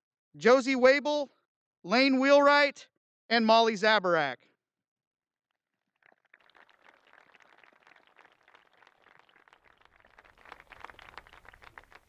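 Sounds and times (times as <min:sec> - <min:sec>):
faint applause: 0:06.0 - 0:12.0.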